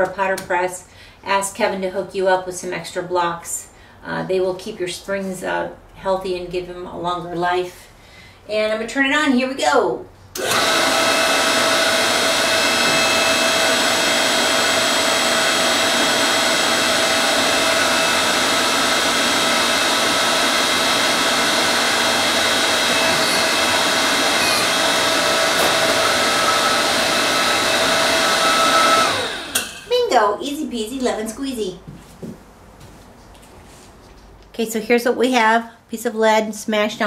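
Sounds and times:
hydraulic press pump motor humming: 10.4s - 29.9s.

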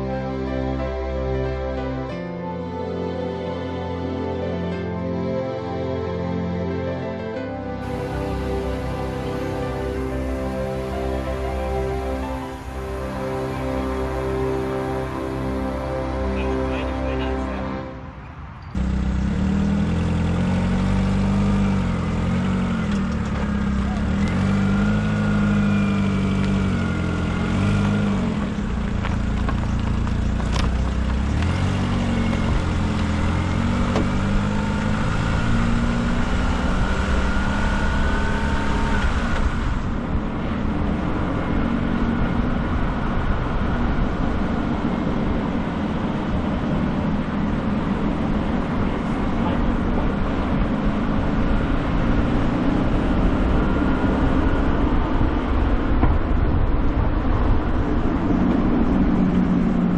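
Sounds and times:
car engine running: 7.8s - 17.3s, 18.7s - 59.9s
tyres rolling on asphalt: 18.7s - 59.9s.

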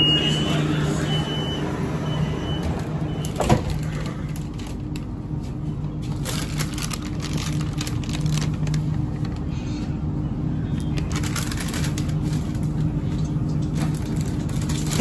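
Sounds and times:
door-warning beep: 0.0s - 3.7s
train carriage hum: 0.0s - 15.0s.

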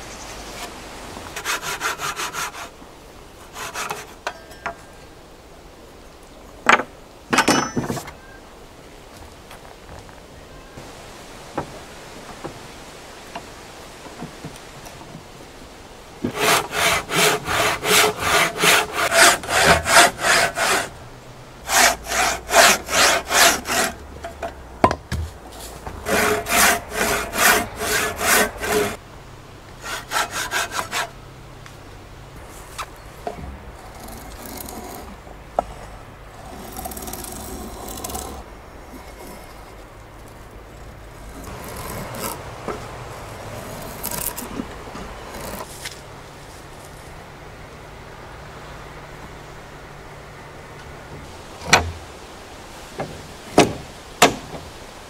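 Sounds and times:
handsaw cutting wood: 1.4s - 2.8s, 3.4s - 4.2s, 16.2s - 20.9s, 21.6s - 24.0s, 25.9s - 29.0s, 29.8s - 31.1s, 36.4s - 38.4s, 41.4s - 42.4s.

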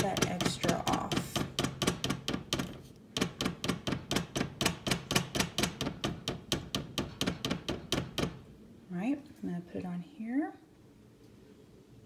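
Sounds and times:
rapid tapping on metal spoon: 0.0s - 8.4s.

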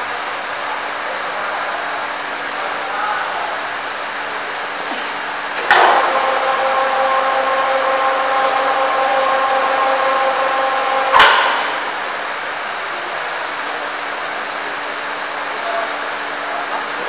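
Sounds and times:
crane electric motor whine: 0.0s - 17.0s
sharp metallic clunk: 11.1s - 12.0s.

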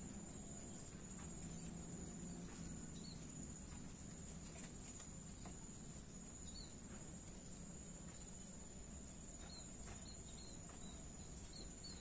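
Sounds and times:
crickets trilling: 5.3s - 12.0s.

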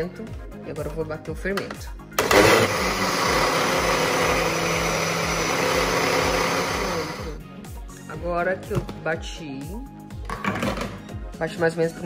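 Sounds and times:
electric blender running: 2.2s - 7.4s.

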